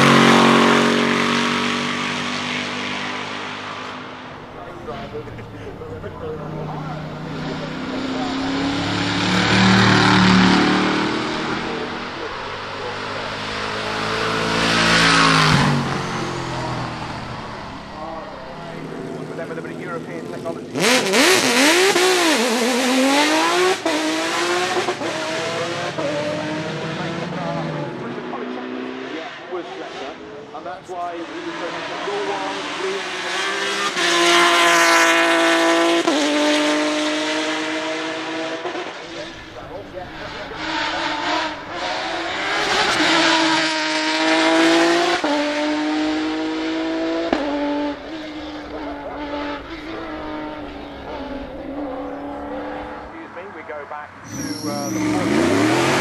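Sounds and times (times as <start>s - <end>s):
buggy engine accelerating past: 0.0s - 29.2s, 54.2s - 56.0s.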